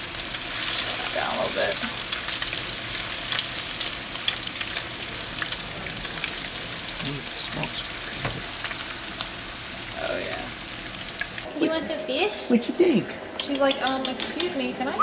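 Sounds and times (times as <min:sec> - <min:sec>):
oil crackling and popping: 0:00.0 - 0:09.5
food sizzling in oil: 0:00.0 - 0:11.6.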